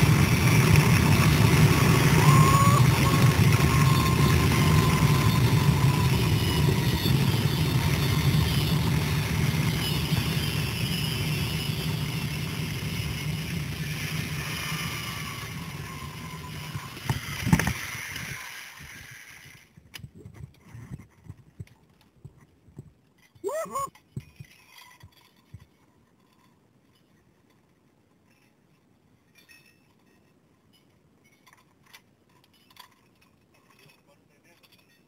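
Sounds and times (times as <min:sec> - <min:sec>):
zipline pulleys whirring on cable: 0:00.0 - 0:21.3.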